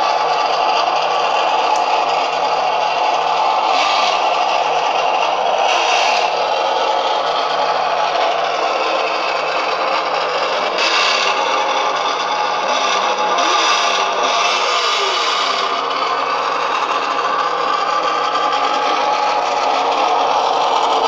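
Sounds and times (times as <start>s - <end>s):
toy truck engine sound: 0.0s - 21.0s.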